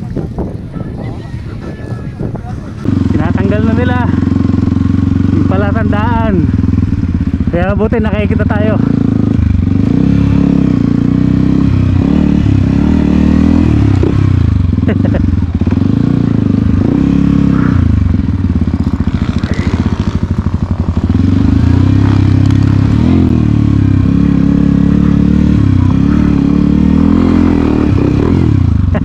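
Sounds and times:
dirt bike engine revving: 1.6 - 29.0.

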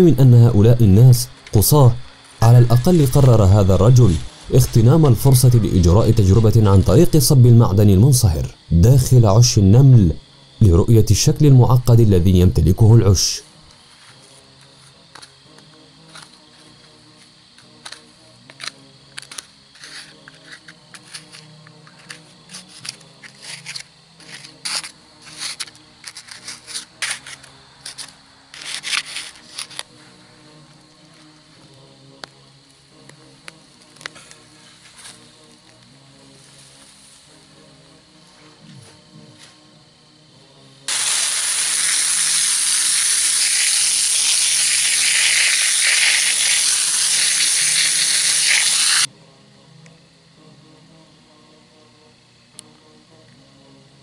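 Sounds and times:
metal trowel scraping dirt: 19.7 - 29.8
water jet spraying on metal: 40.9 - 49.1.

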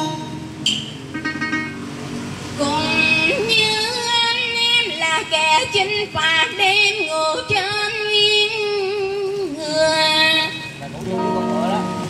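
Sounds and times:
person singing with vibrato: 2.6 - 11.9
guitar accompaniment: 5.2 - 12.0.

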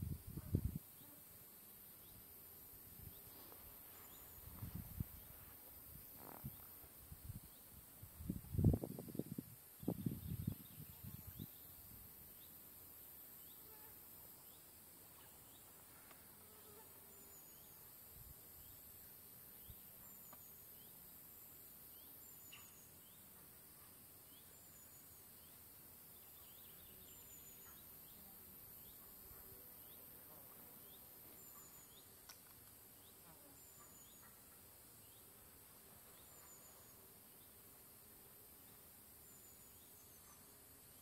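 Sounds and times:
high hiss of insects: 0.0 - 41.0
faint small chirps: 22.3 - 23.2.

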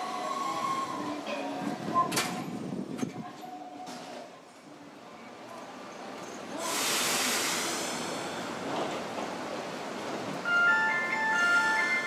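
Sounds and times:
tram air hiss: 6.5 - 10.0.

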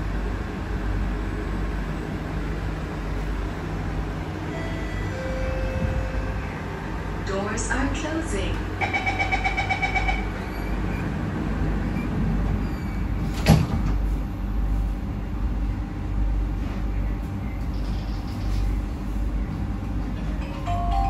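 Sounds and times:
train low rumble: 0.0 - 21.0
sliding train doors banging shut: 11.8 - 14.2.

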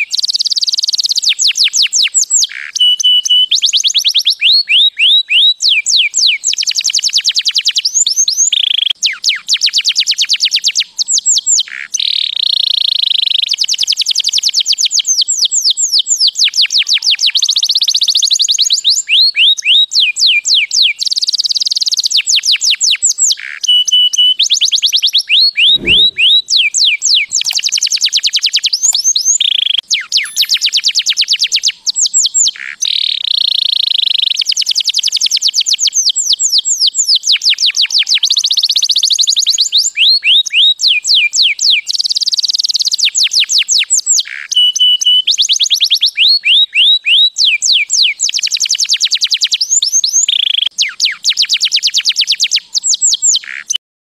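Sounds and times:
canary singing: 2.4 - 3.6, 29.5 - 30.8.

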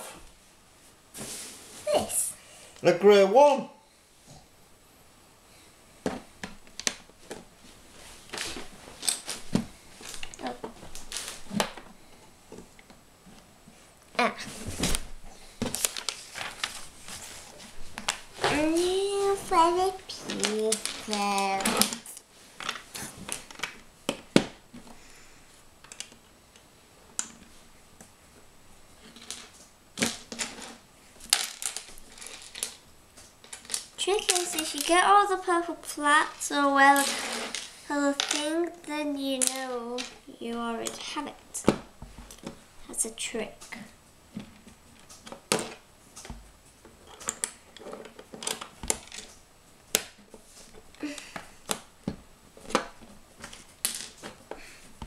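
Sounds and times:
plastic bricks clicking and clattering: 20.1 - 23.8, 31.3 - 32.8, 36.9 - 38.5.

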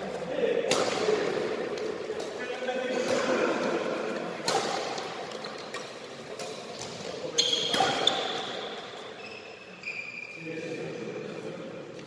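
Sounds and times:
racket striking shuttlecock: 4.4 - 6.9
high squeak: 9.2 - 10.4.

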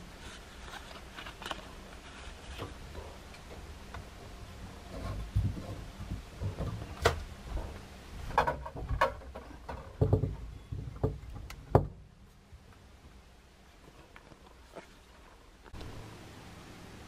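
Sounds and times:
handling thumps: 4.9 - 12.1.

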